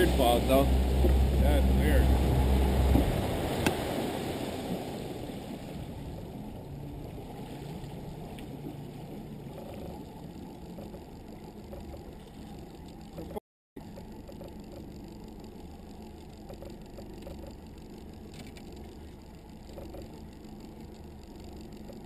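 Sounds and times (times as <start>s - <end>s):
rushing wind: 0.0s - 8.2s
muffled outboard motor drone: 0.0s - 22.0s
water noise: 0.0s - 22.0s.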